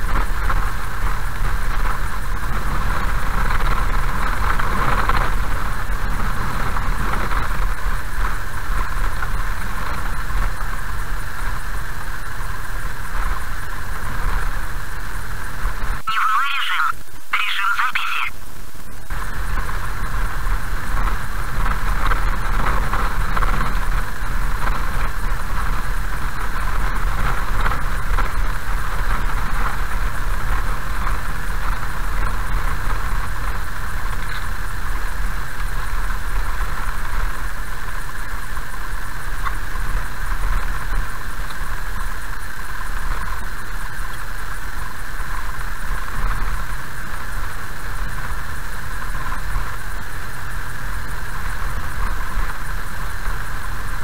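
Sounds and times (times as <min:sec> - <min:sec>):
constant high-pitched hum: 0:00.0 - 0:54.0
engine and tyre rumble on gravel: 0:19.1 - 0:54.0.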